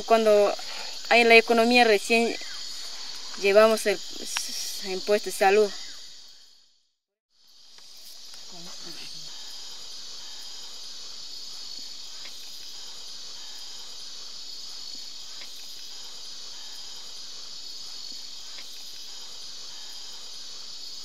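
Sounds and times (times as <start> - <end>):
insects droning: 0.0 - 21.0
faint ticks: 12.1 - 12.8, 15.3 - 16.0, 18.1 - 19.2.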